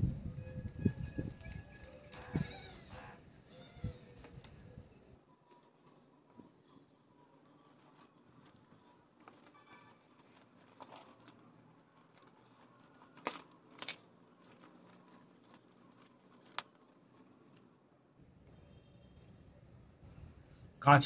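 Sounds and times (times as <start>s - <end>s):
cardboard and paper crinkling: 5.4s - 17.8s.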